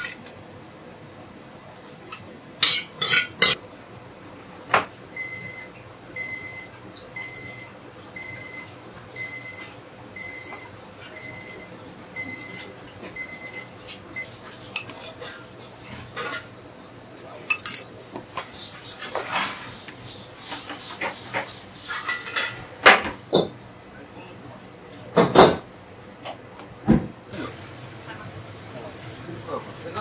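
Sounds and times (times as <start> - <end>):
dishes and utensils clattering: 0.0 - 0.4, 2.1 - 3.6, 13.9 - 16.6, 17.4 - 23.6
electronic kitchen beeper beeping: 5.1 - 14.4.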